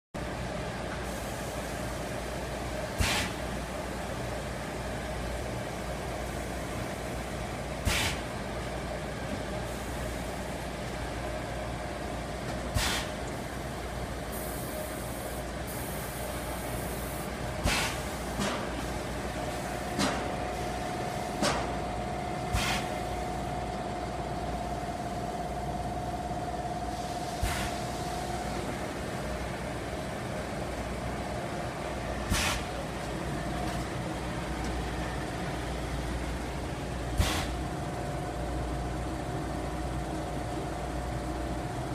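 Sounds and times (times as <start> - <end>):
production line machinery drone: 0.2 - 41.9
steady machine whine: 8.4 - 41.9.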